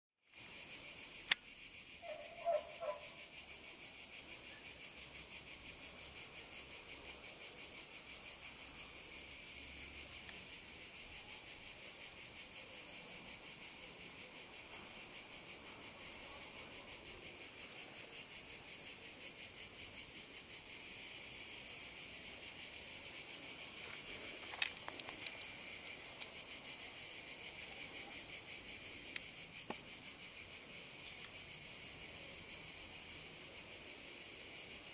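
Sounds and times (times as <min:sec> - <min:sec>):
insects singing: 0:00.3 - 0:34.9.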